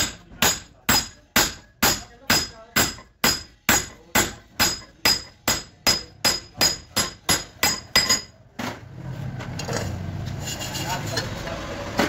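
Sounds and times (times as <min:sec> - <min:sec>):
hammer striking metal: 0:00.0 - 0:08.4.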